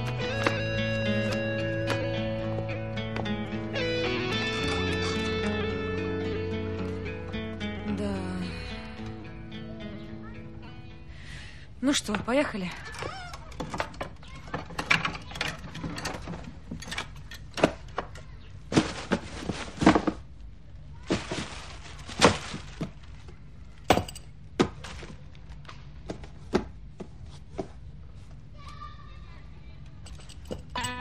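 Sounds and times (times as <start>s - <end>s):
objects knocking and thumping: 12.1s - 20.3s, 21.0s - 25.3s, 30.0s - 31.0s
rustling and sliding: 18.6s - 20.4s, 21.0s - 23.4s.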